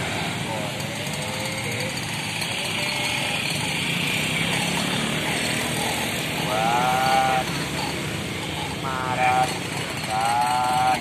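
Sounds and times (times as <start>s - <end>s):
passing road traffic: 0.0s - 11.0s.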